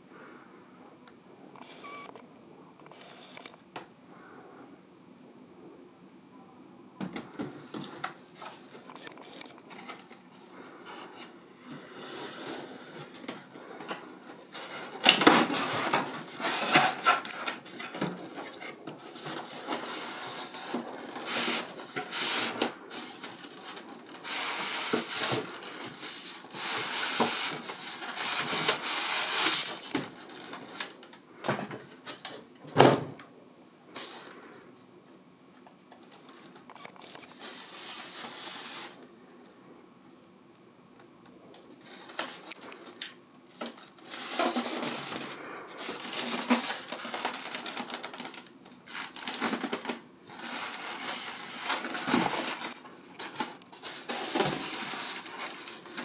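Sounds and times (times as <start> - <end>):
paper rustling and scraping: 11.9 - 31.0, 37.3 - 39.0, 43.6 - 56.0.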